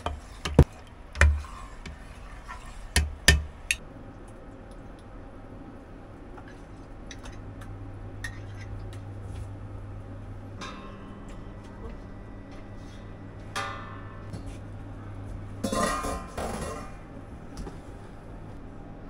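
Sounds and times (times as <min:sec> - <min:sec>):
steady low hum: 0:00.0 - 0:19.0
utensils and cookware clinking: 0:15.6 - 0:17.0.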